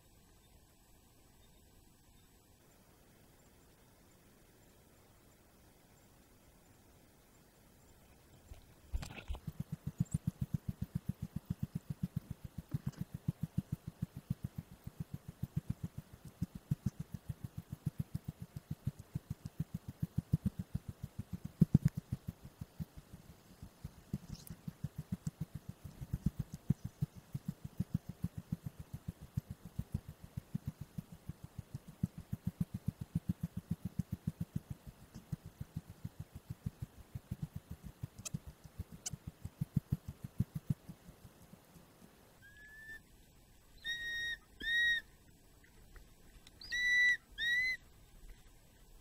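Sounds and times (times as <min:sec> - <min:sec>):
hawk-eagle whistled calls: 0:42.4 - 0:43.1, 0:43.8 - 0:45.1, 0:46.6 - 0:47.8.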